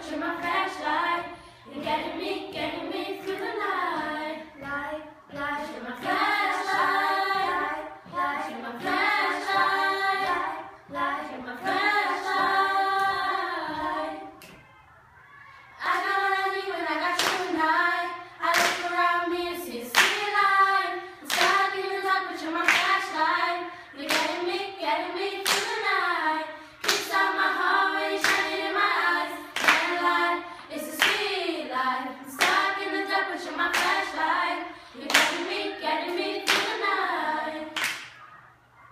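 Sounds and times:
girls singing together: 0.0 - 38.9
hand claps: 17.2 - 17.5, 18.5 - 18.9, 19.9 - 20.3, 21.3 - 21.6, 22.6 - 23.0, 26.8 - 27.2, 28.2 - 28.5, 29.6 - 29.9, 33.7 - 34.0, 35.1 - 35.4, 36.5 - 36.8, 37.8 - 38.2.

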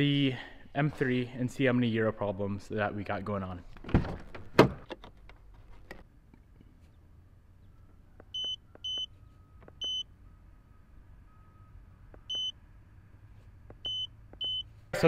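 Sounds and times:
short high beeps: 8.4 - 9.1, 9.8 - 10.1, 12.3 - 12.6, 13.8 - 14.7.

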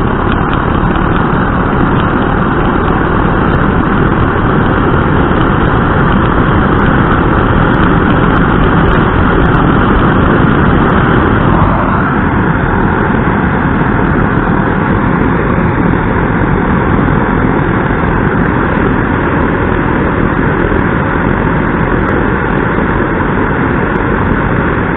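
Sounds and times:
blowlamp flame rushing: 0.0 - 24.9.

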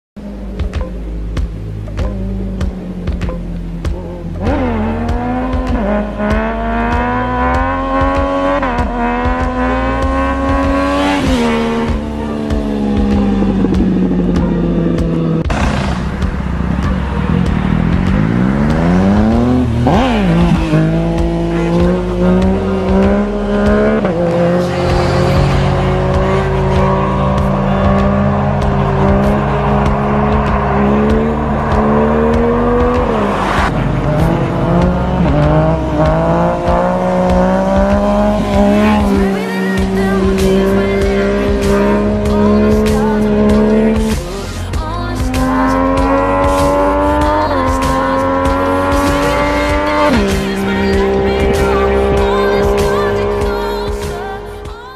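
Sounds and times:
motorcycle engine at high revs: 0.2 - 54.9.

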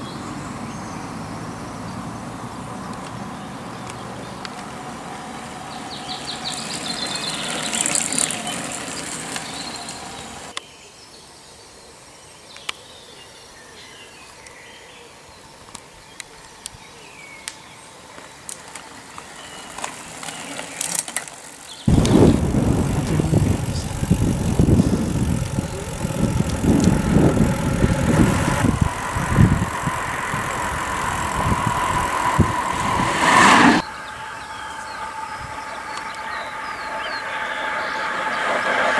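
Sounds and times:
scattered ticks: 20.8 - 28.8
loud uneven rumble: 21.8 - 38.9
steady whine: 21.9 - 38.9.

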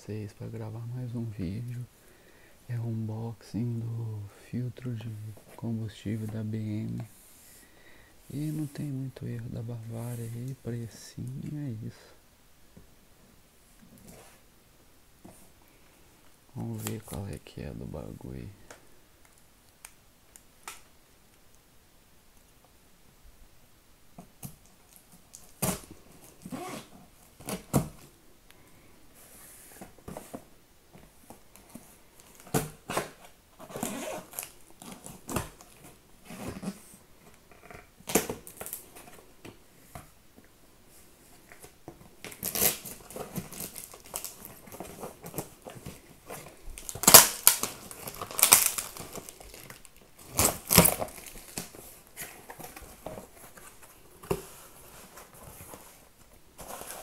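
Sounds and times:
packing tape tearing: 32.2 - 36.8, 37.7 - 39.0, 41.6 - 54.4.

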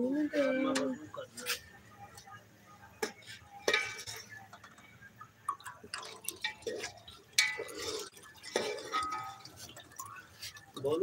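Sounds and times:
spoon stirring thick paste: 5.6 - 11.0.

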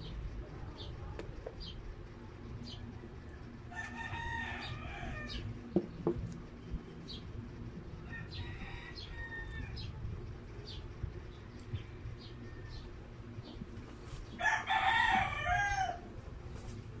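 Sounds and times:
rooster crowing: 3.7 - 5.5, 8.0 - 10.0, 14.4 - 16.2.

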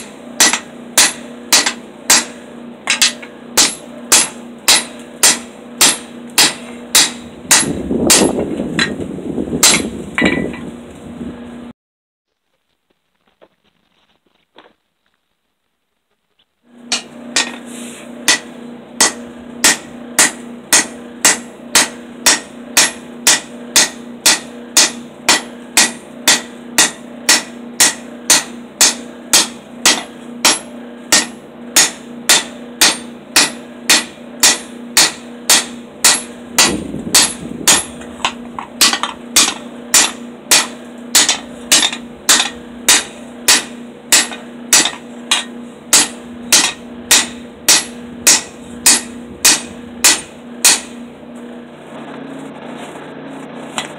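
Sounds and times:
hammer blows on anvil: 0.0 - 9.0, 9.6 - 10.7, 16.8 - 51.0
steady low hum: 0.0 - 11.7, 13.1 - 53.9.

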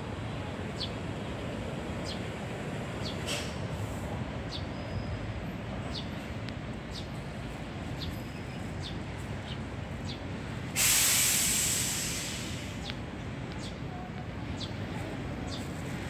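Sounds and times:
low hum of traffic: 0.0 - 16.0
sparrows chirping: 3.0 - 3.2, 4.5 - 5.1, 6.9 - 7.2, 7.9 - 10.3
sudden loud hiss: 10.7 - 12.8.

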